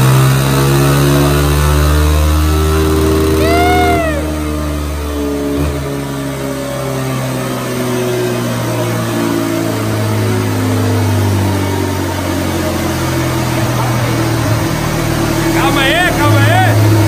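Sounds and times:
motorcycle engine running on dynamometer: 0:00.0 - 0:17.0.

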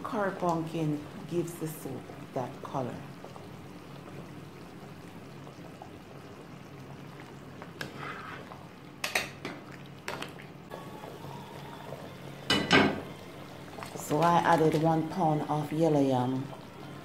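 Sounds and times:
soup simmering: 0:00.0 - 0:17.0.

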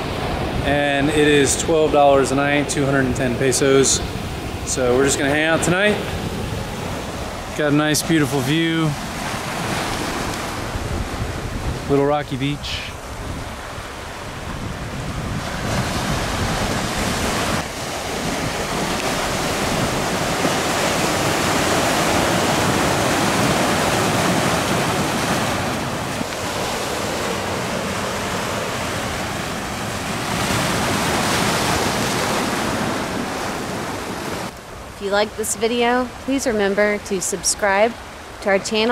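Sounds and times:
surf washing over cobblestones: 0:00.0 - 0:38.9
wind buffeting microphone: 0:00.0 - 0:38.9.

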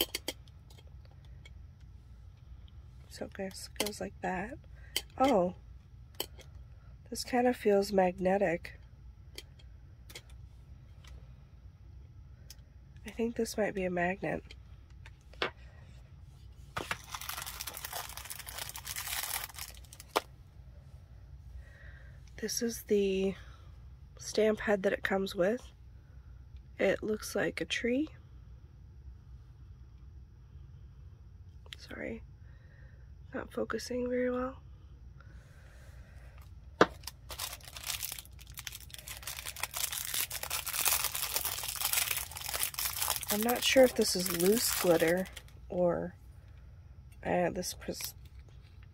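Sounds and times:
plastic bag crinkling: 0:16.8 - 0:20.3, 0:36.8 - 0:45.6
burlap pouch rustling: 0:37.0 - 0:45.3.

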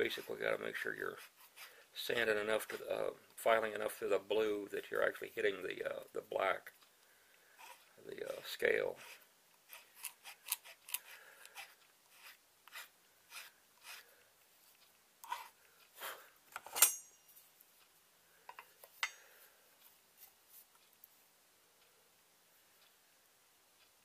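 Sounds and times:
hand file rasping: 0:09.0 - 0:14.1
metallic clink: 0:16.6 - 0:17.4, 0:19.0 - 0:19.3.

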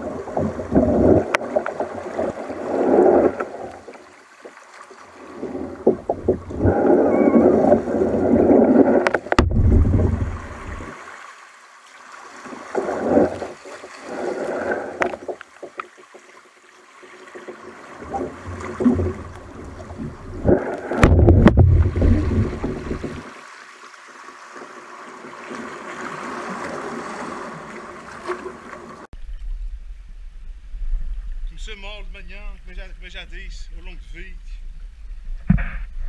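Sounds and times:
water sloshing and splashing: 0:00.0 - 0:29.7
knocks on kayak: 0:09.1 - 0:10.3, 0:21.0 - 0:23.2
heavy low rumble: 0:09.4 - 0:10.9, 0:19.3 - 0:23.0.

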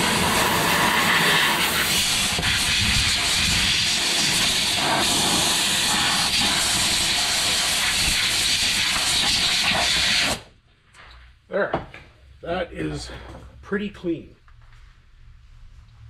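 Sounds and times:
compressed air hissing: 0:00.0 - 0:10.5.

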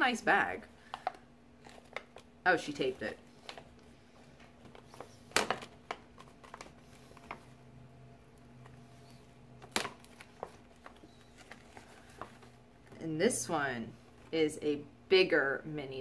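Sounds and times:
faint steady hum: 0:00.0 - 0:16.0
tape crackling: 0:00.8 - 0:13.1
gift bag rustling: 0:10.0 - 0:13.0.

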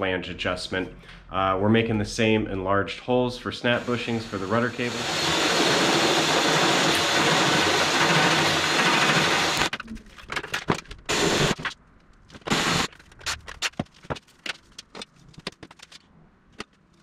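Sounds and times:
cordless drill boring through metal: 0:03.6 - 0:09.7.

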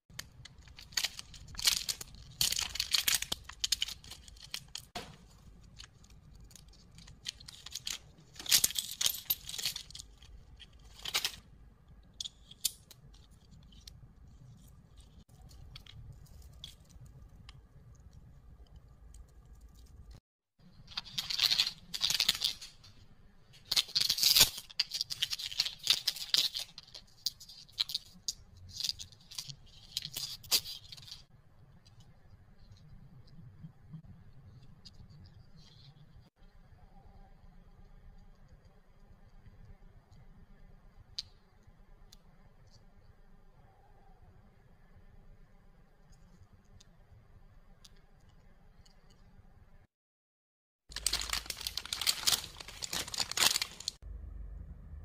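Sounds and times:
plastic wrappers crinkling and tearing: 0:00.1 - 0:08.6, 0:23.6 - 0:31.3, 0:50.9 - 0:54.0.

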